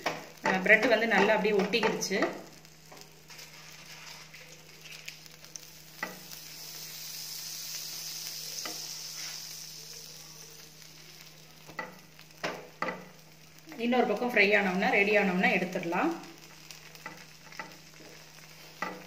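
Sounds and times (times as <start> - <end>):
spatula tapping a pan: 0.0 - 3.0, 6.0 - 6.2, 11.6 - 13.1, 18.8 - 19.0
butter sizzling on a pan: 0.0 - 19.0.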